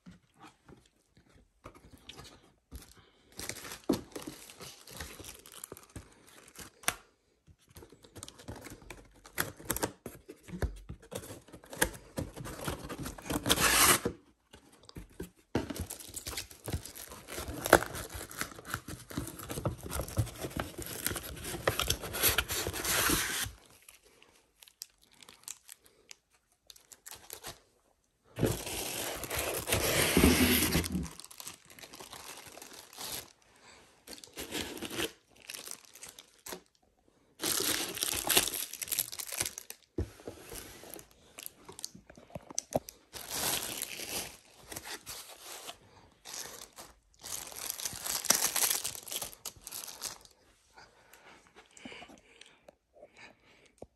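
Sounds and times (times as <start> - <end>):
plastic bags crinkling: 2.8 - 6.8, 30.8 - 33.4, 34.1 - 36.8, 37.4 - 39.9, 41.0 - 45.1, 46.2 - 50.4
cardboard rubbing and rustling: 16.8 - 23.6, 28.4 - 31.2.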